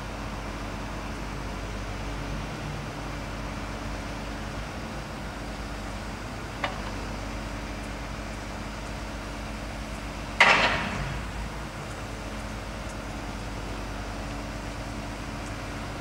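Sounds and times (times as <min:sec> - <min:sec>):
loud metal bang: 0:10.4 - 0:11.4.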